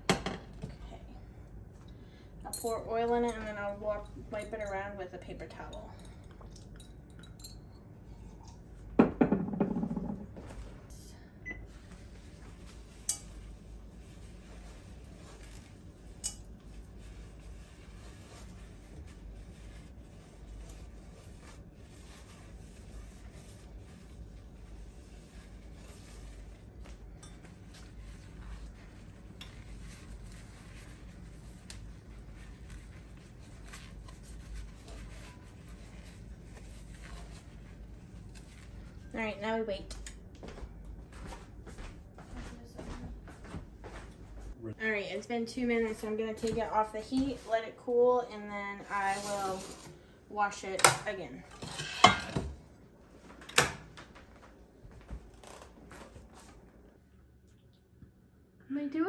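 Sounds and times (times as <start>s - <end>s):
paper towel wiping pan: 11.7s - 39.0s
cookware clattering and scraping: 50.9s - 52.6s.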